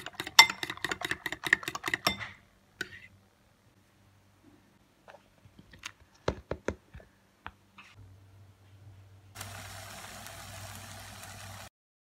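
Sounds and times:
metal spoon clinking glass bowl: 0.0s - 2.4s
oil sizzling in frying pan: 9.4s - 11.7s.

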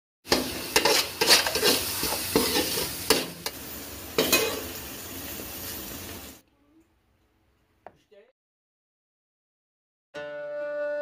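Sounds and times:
metal spatula scraping pot: 0.3s - 3.4s
food sizzling in a pot: 0.3s - 6.4s.

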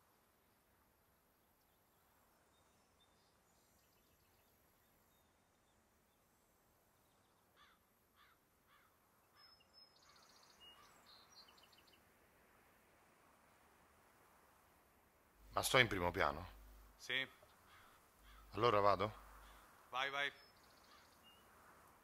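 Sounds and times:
distant birds: 0.0s - 22.0s
short bird calls: 7.0s - 12.0s, 16.2s - 21.5s.

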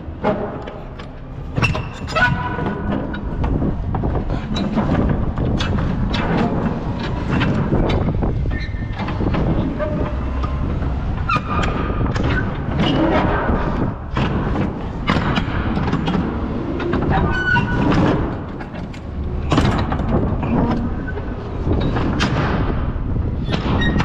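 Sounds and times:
metal door clanks and knocks: 0.2s - 24.0s.

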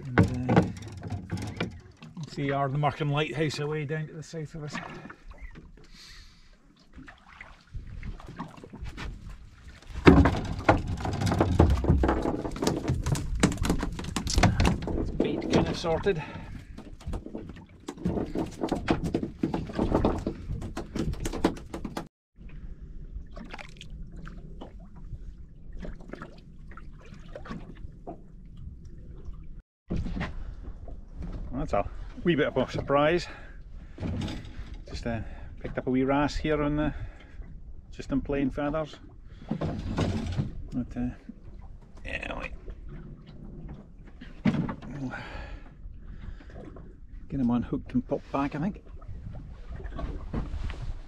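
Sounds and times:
waves lapping against boat: 0.0s - 51.0s
small splashes: 6.8s - 11.1s, 23.3s - 24.9s.

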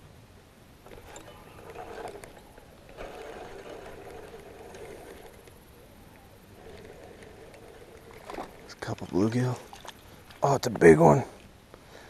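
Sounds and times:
fishing reel gears whirring: 0.8s - 10.5s.

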